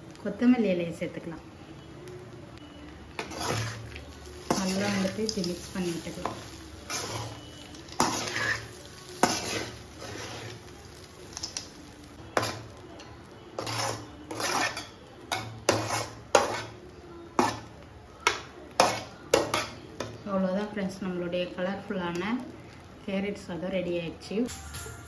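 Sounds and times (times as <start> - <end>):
metal spatula scraping metal pan: 3.2 - 10.7, 12.4 - 12.8, 13.6 - 16.8, 17.4 - 17.7, 18.8 - 19.8.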